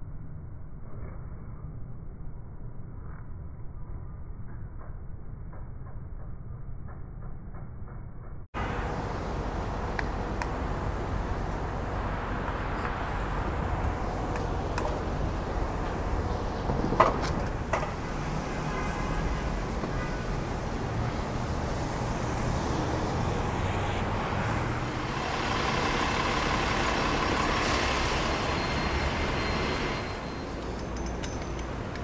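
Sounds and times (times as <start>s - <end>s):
louder vehicle passing: 8.6s - 31.0s
road traffic rumble: 8.6s - 32.0s.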